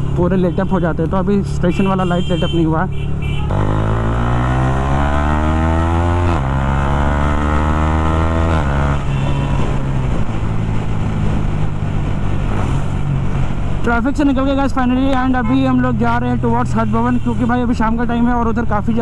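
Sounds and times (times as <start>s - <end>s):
motorcycle accelerating hard: 3.5s - 13.1s.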